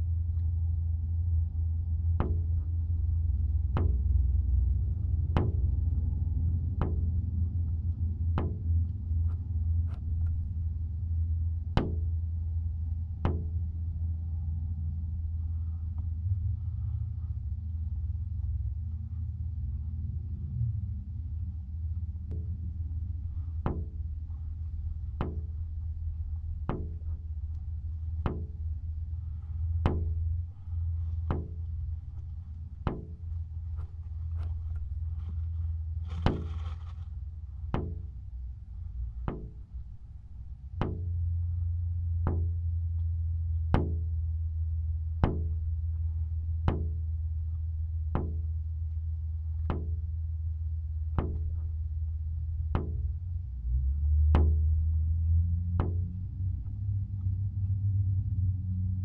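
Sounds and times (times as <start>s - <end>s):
low music drone: 0.0s - 59.0s
steady low rumble: 0.0s - 59.0s
sharp wood-block knocks: 11.8s - 12.1s, 28.2s - 28.6s, 29.8s - 30.2s, 31.3s - 31.7s, 32.8s - 33.4s, 39.3s - 39.6s, 45.2s - 45.6s, 46.7s - 47.0s, 48.2s - 48.4s, 51.2s - 51.6s, 52.8s - 53.1s.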